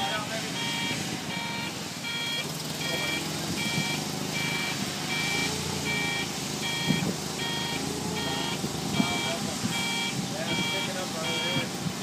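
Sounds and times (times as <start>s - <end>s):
forklift two-tone warning beeps: 0.0s - 11.7s
forklift engine running: 0.0s - 12.0s.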